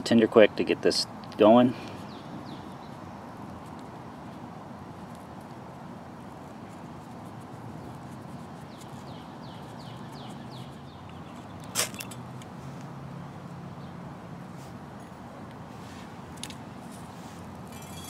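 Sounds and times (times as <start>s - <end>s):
steady background hiss: 0.0s - 18.0s
ferrocerium rod scrape: 16.9s - 18.0s.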